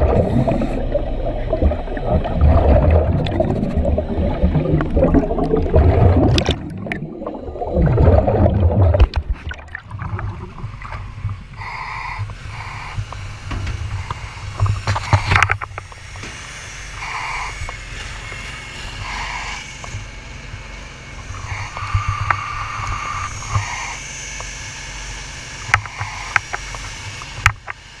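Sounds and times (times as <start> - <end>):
steady low rumble: 0.0 - 19.4.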